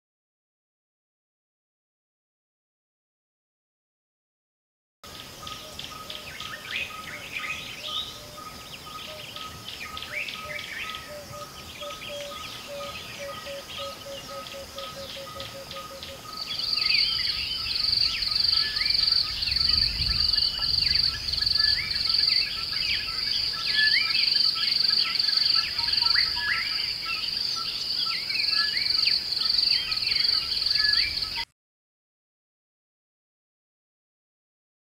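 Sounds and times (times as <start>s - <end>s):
birds chirping and calling: 5.1s - 31.4s.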